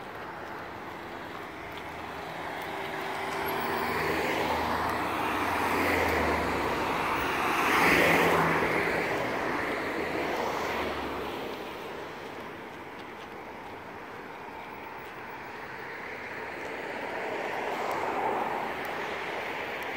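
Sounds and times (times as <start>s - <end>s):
passing vehicle engine and rushing: 0.6s - 12.5s.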